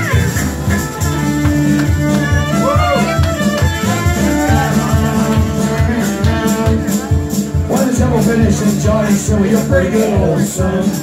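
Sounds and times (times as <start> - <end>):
fiddles playing a tune: 0.0 - 7.0
guitar: 0.0 - 11.0.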